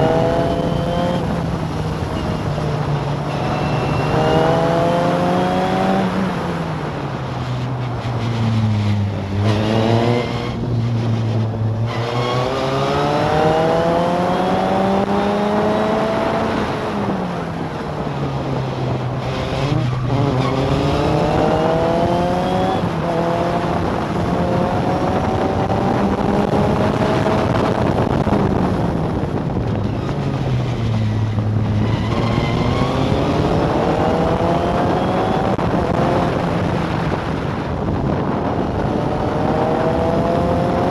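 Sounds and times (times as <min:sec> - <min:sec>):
racing car engine revving: 0:00.0 - 0:06.4, 0:08.6 - 0:17.1, 0:19.2 - 0:29.0, 0:31.6 - 0:36.8, 0:38.2 - 0:40.9.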